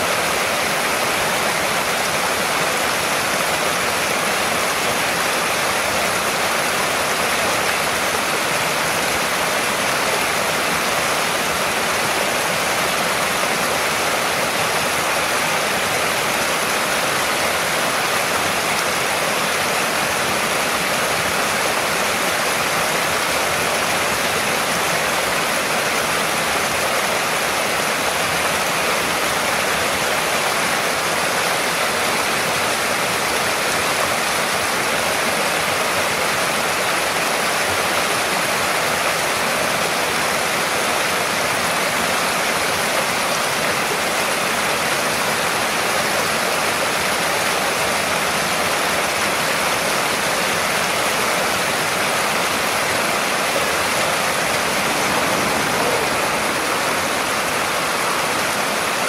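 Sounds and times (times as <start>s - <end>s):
waterfall rushing: 0.0s - 59.0s.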